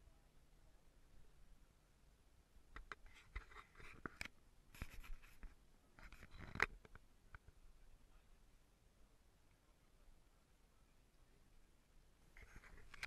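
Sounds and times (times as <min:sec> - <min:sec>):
camera handling rubbing: 0:02.8 - 0:06.7, 0:12.4 - 0:13.0.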